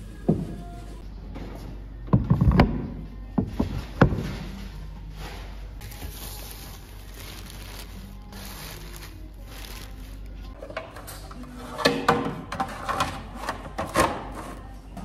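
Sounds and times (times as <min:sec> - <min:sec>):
plastic sheeting rustling: 0:05.8 - 0:10.5.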